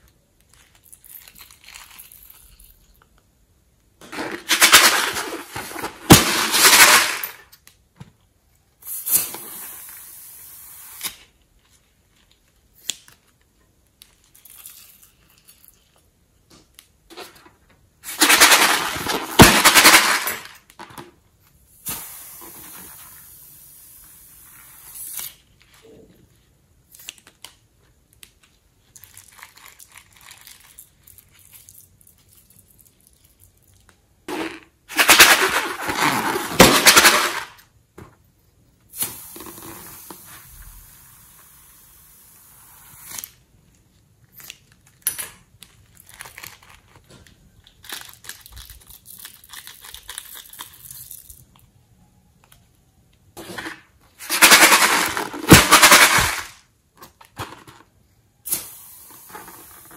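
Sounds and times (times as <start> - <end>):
soft steady hiss: 20.3 - 34.9, 37.6 - 49.5.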